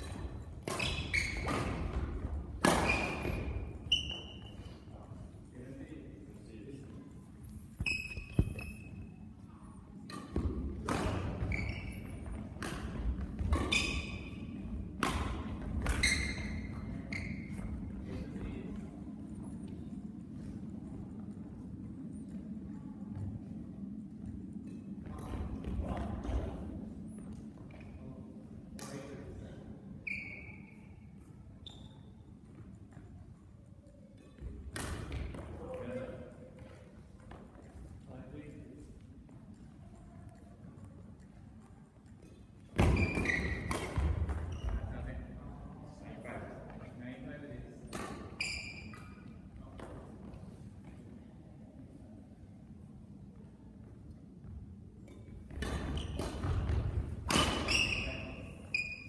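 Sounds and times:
rackets hitting shuttlecock: 0:00.0 - 0:03.7, 0:10.0 - 0:11.6, 0:12.2 - 0:16.5, 0:34.4 - 0:35.5, 0:42.2 - 0:44.5, 0:47.9 - 0:50.0, 0:55.0 - 0:58.1
shoes squeaking on court floor: 0:00.0 - 0:05.0, 0:07.4 - 0:09.4, 0:10.0 - 0:18.0, 0:30.0 - 0:33.1, 0:42.0 - 0:45.3, 0:47.9 - 0:50.7, 0:55.1 - 0:59.0.

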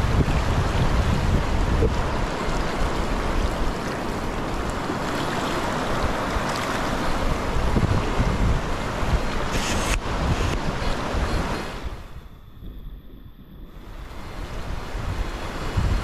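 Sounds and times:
river rushing over rocks: 0:00.0 - 0:12.1
wind buffeting microphone: 0:00.0 - 0:16.0.

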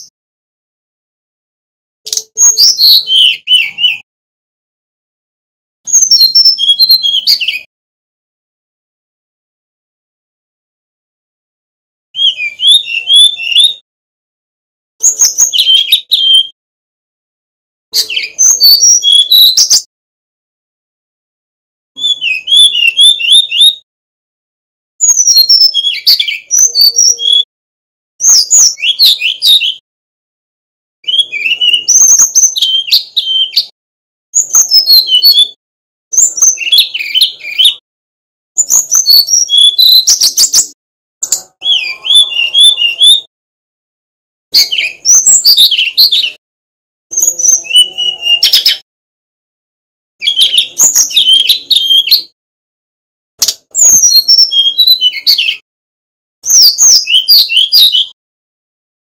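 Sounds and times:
bird singing flute-like whistles: 0:02.1 - 0:04.0, 0:05.9 - 0:07.7, 0:12.2 - 0:13.8, 0:15.0 - 0:16.6, 0:18.0 - 0:19.9, 0:22.0 - 0:23.8, 0:25.0 - 0:27.5, 0:28.2 - 0:29.8, 0:31.0 - 0:33.7, 0:34.4 - 0:37.8, 0:38.6 - 0:40.8, 0:41.6 - 0:43.3, 0:44.6 - 0:46.4, 0:47.1 - 0:48.8, 0:50.2 - 0:52.4, 0:53.8 - 0:55.6, 0:56.4 - 0:58.2.

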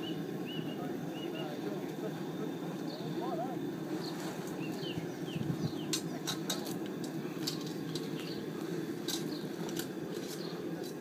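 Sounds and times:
bird chirps: 0:00.0 - 0:01.6, 0:04.0 - 0:06.0.

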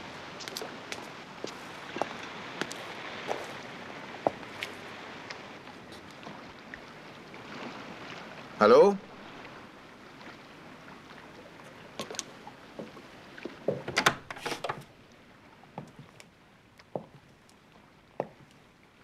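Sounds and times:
wind: 0:00.0 - 0:19.0
footsteps: 0:00.4 - 0:03.6
wooden door clattering open: 0:13.7 - 0:14.9.

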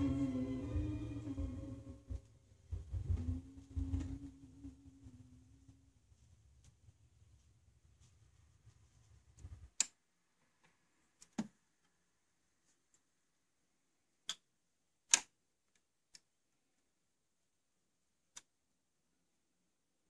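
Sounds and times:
faint low rumble: 0:00.0 - 0:09.6.

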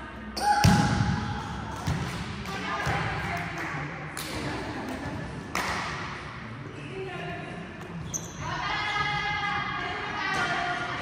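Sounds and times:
volleyball hits: 0:00.4 - 0:03.3.

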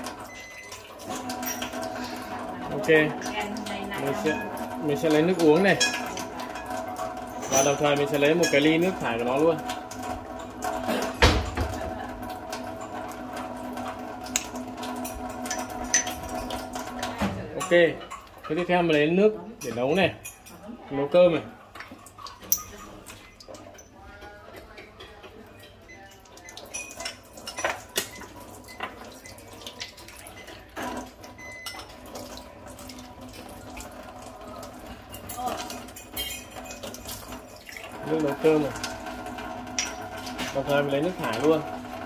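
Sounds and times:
water ionizer humming: 0:00.0 - 0:42.0
glass cups clinking: 0:00.2 - 0:03.4, 0:04.0 - 0:09.4, 0:14.4 - 0:20.6, 0:22.2 - 0:32.3, 0:34.7 - 0:38.8, 0:39.7 - 0:41.6.

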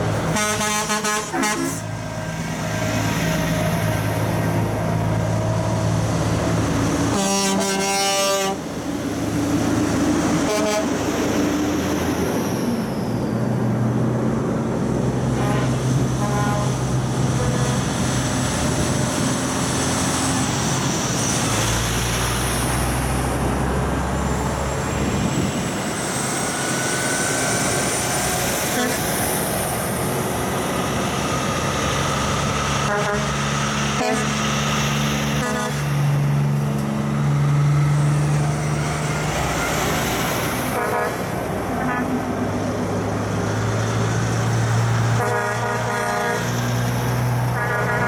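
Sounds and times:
heavy trucks driving past: 0:00.0 - 0:48.0
truck horn blasts: 0:00.2 - 0:02.0, 0:07.1 - 0:08.7, 0:10.4 - 0:11.0, 0:15.3 - 0:18.0, 0:28.7 - 0:29.1, 0:32.8 - 0:33.4, 0:34.0 - 0:34.4, 0:35.4 - 0:35.9, 0:40.7 - 0:42.2, 0:45.1 - 0:46.6, 0:47.5 - 0:48.0.

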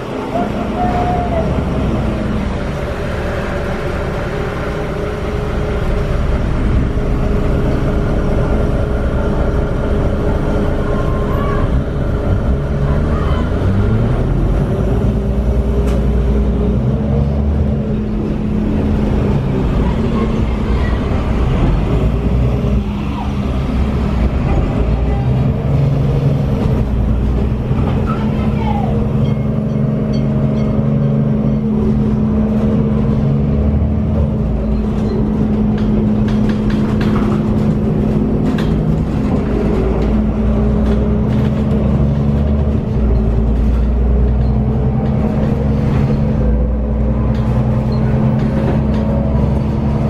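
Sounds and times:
bus diesel engine running: 0:00.0 - 0:50.0.

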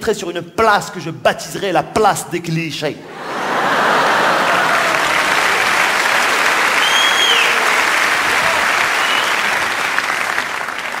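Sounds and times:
audience applauding: 0:03.2 - 0:11.0
short high whistle: 0:06.8 - 0:07.6, 0:09.0 - 0:09.5.

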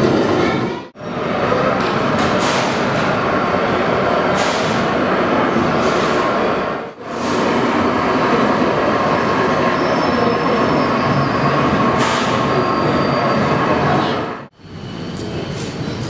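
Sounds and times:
train wheels on rails: 0:00.0 - 0:16.0.

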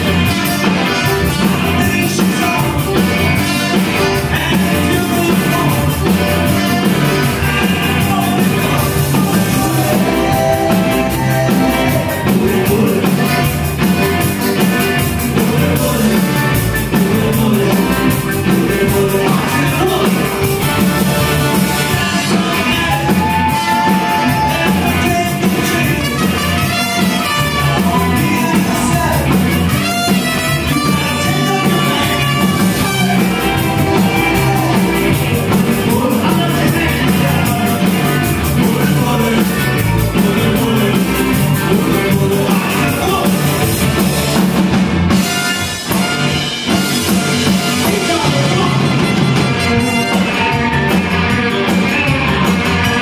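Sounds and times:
person singing: 0:00.0 - 0:44.4, 0:46.9 - 0:53.0
live rock band playing: 0:00.0 - 0:53.0
saxophone: 0:25.7 - 0:28.2, 0:29.4 - 0:35.2, 0:45.1 - 0:53.0.

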